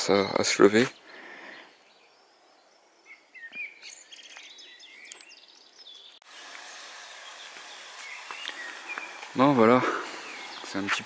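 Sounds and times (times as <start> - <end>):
birds chirping and singing: 0.0 - 6.2, 7.0 - 11.0
faint outdoor background noise: 0.0 - 11.0
steady hiss: 6.2 - 11.0.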